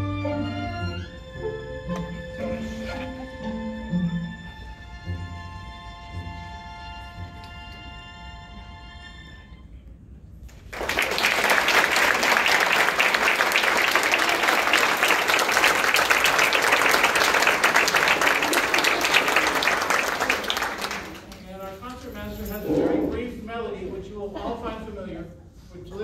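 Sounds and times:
audience applause: 10.5s - 21.6s.

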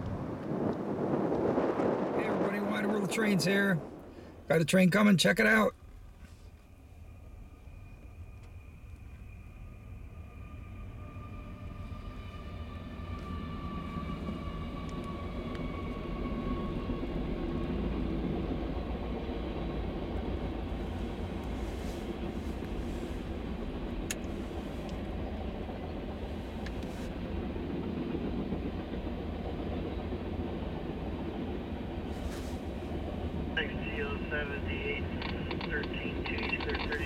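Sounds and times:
train wheels rumbling on track: 7.1s - 37.0s
sharp clicks: 35.1s - 37.0s.

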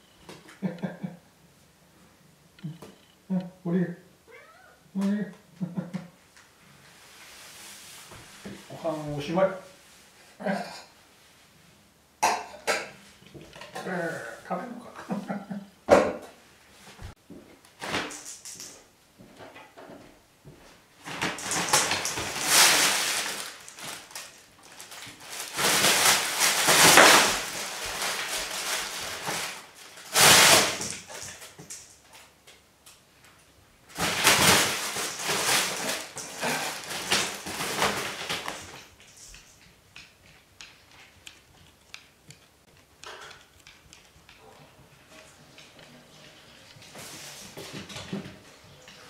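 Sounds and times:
fabric tunnel rustling and crinkling: 21.0s - 31.2s, 33.9s - 39.0s.

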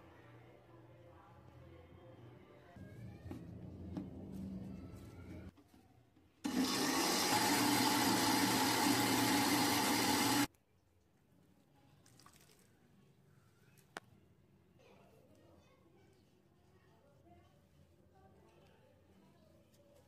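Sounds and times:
electric blender running: 6.5s - 10.5s.

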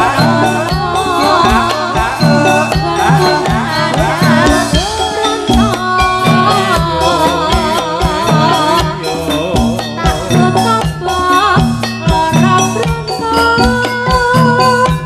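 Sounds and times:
person singing wavering melody: 0.0s - 15.0s
steady drum beat: 0.0s - 15.0s.

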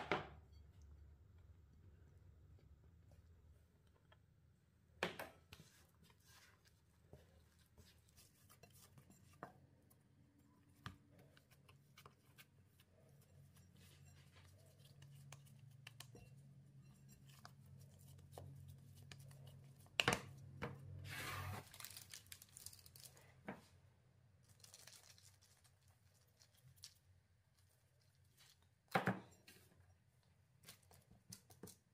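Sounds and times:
packet tearing open: 21.6s - 23.2s.

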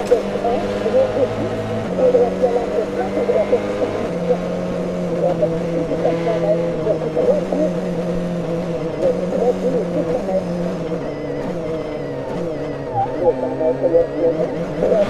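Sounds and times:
rally car engine at high revs: 0.0s - 15.0s.

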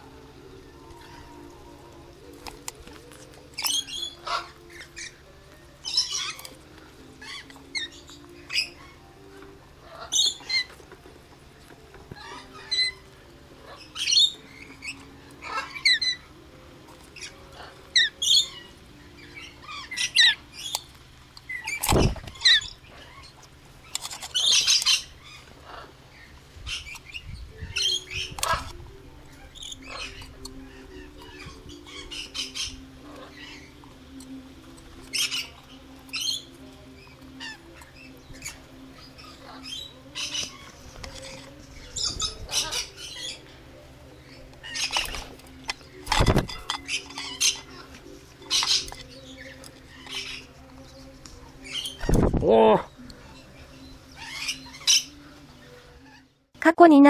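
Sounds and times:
parrots shrill calls: 3.6s - 5.2s, 5.8s - 6.6s, 9.8s - 10.8s, 12.2s - 16.3s, 17.2s - 20.8s, 21.5s - 33.8s, 35.1s - 43.6s, 44.2s - 50.5s, 54.1s - 56.3s.

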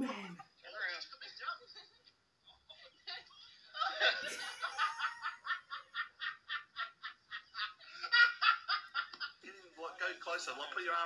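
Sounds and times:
woman laughing: 3.8s - 9.2s.

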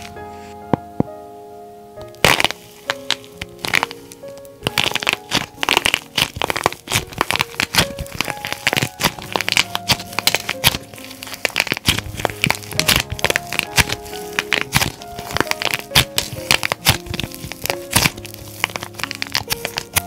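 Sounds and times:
soft piano music: 0.0s - 20.0s
clay cracking and crumbling: 2.1s - 20.0s.

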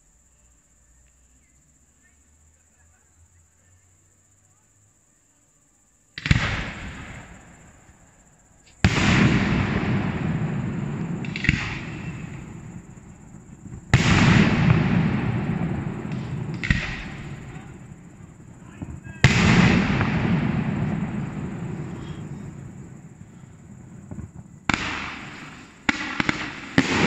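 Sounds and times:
small firework pops: 6.2s - 8.0s, 8.6s - 27.0s
firework bangs with echo: 6.2s - 8.2s, 8.8s - 27.0s.

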